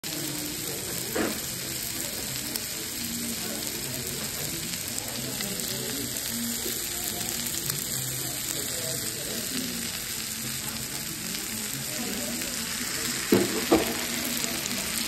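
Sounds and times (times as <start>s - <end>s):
food sizzling on skillet: 0.0s - 15.0s.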